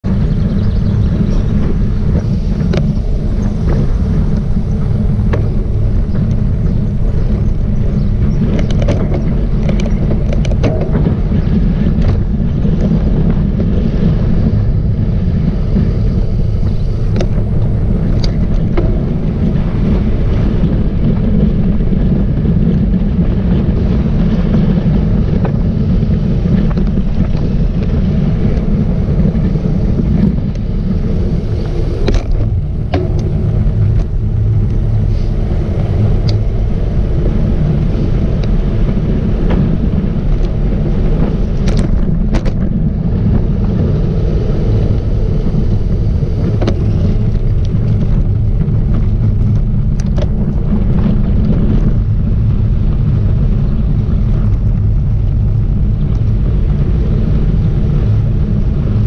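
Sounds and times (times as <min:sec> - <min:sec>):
wind buffeting microphone: 0:00.0 - 0:59.0
bike clicks and knocks: 0:00.6 - 0:13.8, 0:15.7 - 0:22.9, 0:29.4 - 0:37.3, 0:38.0 - 0:43.8, 0:44.8 - 0:52.2.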